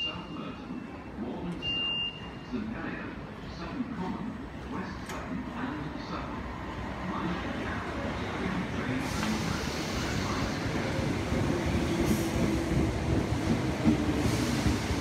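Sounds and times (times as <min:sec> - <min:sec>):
train wheels rumbling on rails: 0:07.6 - 0:15.0.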